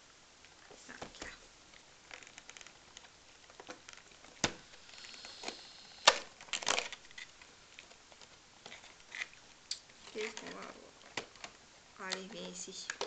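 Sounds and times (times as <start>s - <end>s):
cardboard crackles: 0.6s - 5.6s
cardboard clicking and cracking: 1.0s - 9.4s, 10.0s - 12.2s.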